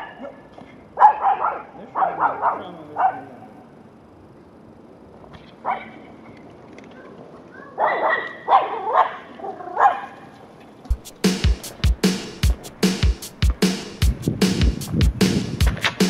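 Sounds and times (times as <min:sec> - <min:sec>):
small dog yapping: 0:01.0 - 0:03.3, 0:07.6 - 0:10.2
music with steady drum beat: 0:10.9 - 0:16.0.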